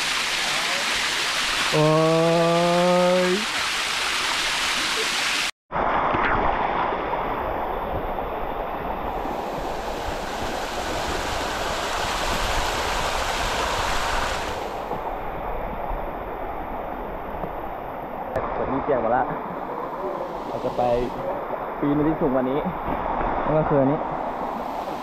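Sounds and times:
waterfall rushing: 0.0 - 5.5, 9.5 - 14.9, 19.7 - 22.5.

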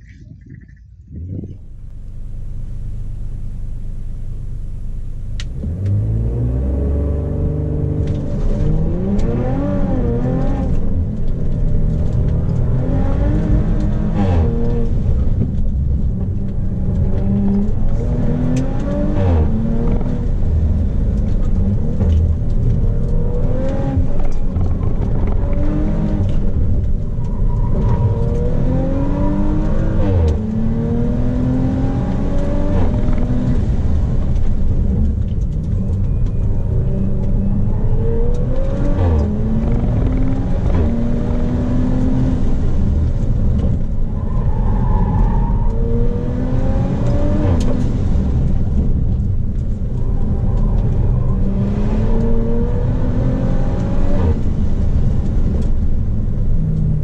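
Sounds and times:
car engine accelerating hard: 1.2 - 57.0.

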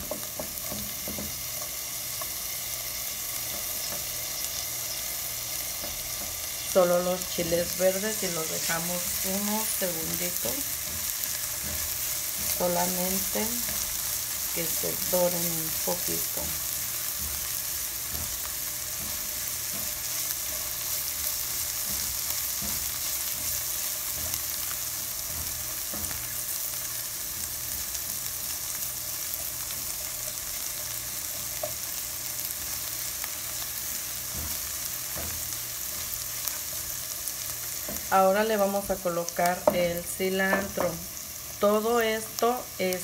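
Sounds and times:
spatula scraping and tapping pan: 0.0 - 2.4, 5.6 - 6.6, 10.1 - 12.6, 16.4 - 26.7, 33.5 - 38.1
vegetables sizzling in oil: 0.0 - 43.0.

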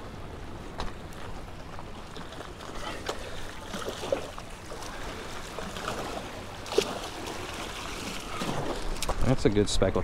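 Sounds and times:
water splashing against rocks: 2.1 - 9.5.

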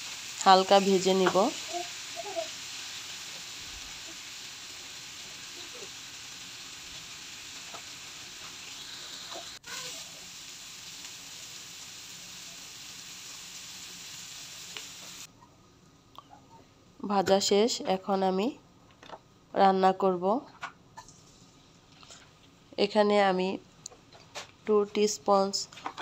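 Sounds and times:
fish frying in oil: 0.0 - 15.3.

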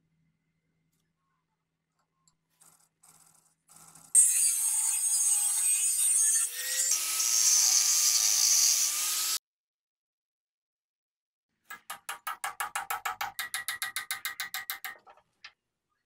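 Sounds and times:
power tool cutting metal: 4.1 - 9.4.

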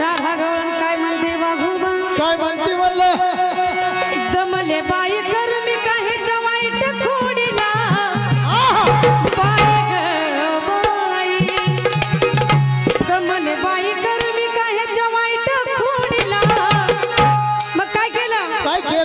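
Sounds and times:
woman singing into microphone: 4.1 - 12.0, 13.0 - 17.1
hand drums: 6.8 - 14.5, 15.8 - 18.6.

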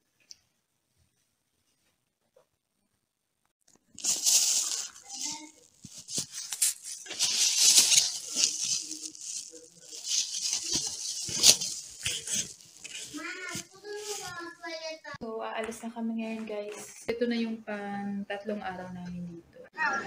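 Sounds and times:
plastic bags rustling: 3.7 - 14.9.

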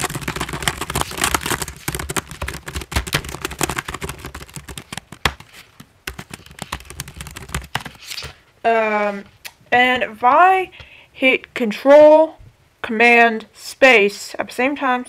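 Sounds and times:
fast typing on keyboard: 0.0 - 8.0.

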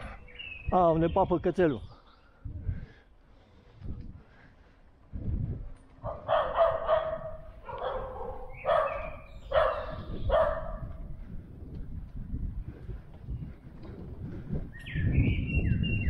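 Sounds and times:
dog barking: 6.0 - 10.9.

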